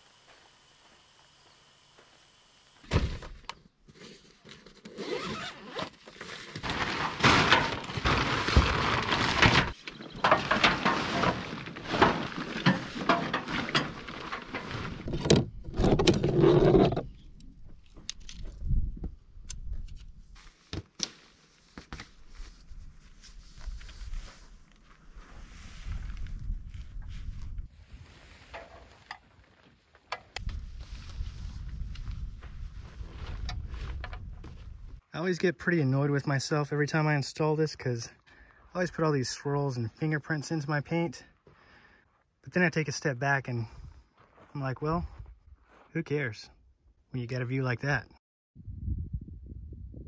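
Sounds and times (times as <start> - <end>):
tent fabric rustling and crinkling: 3.8 - 15.1, 20.2 - 34.0
tent poles clicking and tapping: 20.7 - 21.2.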